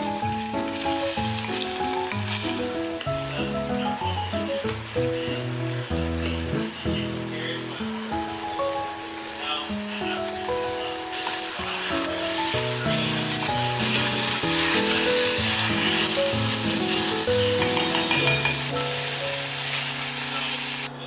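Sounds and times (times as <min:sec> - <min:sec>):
meat and garlic sizzling in oil: 0:00.0 - 0:21.0
soft background music: 0:00.0 - 0:21.0
wooden spatula stirring: 0:00.3 - 0:02.8, 0:10.9 - 0:18.8.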